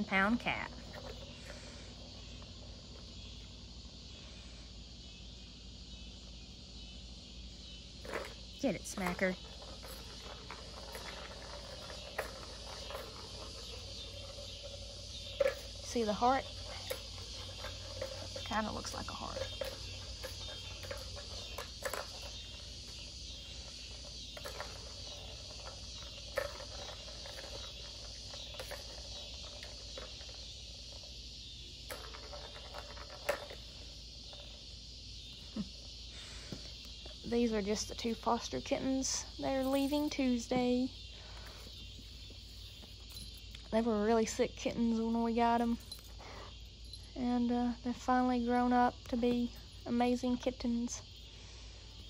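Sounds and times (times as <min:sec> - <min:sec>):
crickets chirring: 0:00.0 - 0:52.0.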